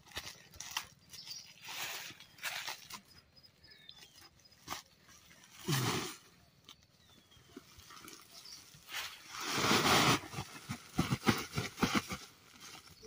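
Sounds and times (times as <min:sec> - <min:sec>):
dry leaves rustling and crackling: 0:00.0 - 0:03.2.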